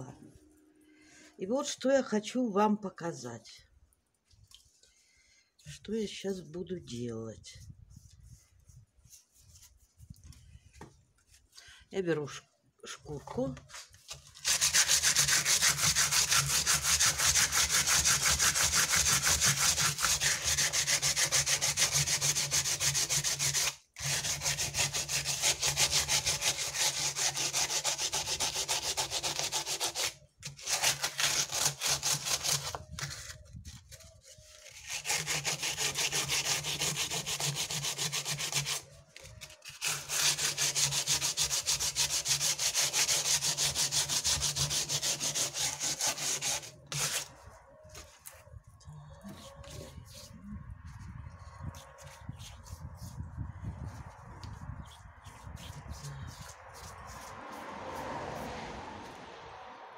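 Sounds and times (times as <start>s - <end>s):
sandpaper rubbing on cement: 7.6s - 10.1s, 13.7s - 48.4s, 49.2s - 58.5s.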